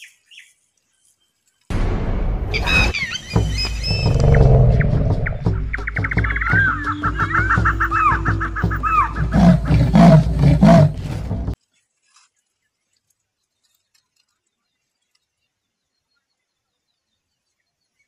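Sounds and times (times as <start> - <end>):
loud low animal calls: 2.5 - 5.8, 7.3 - 11.6.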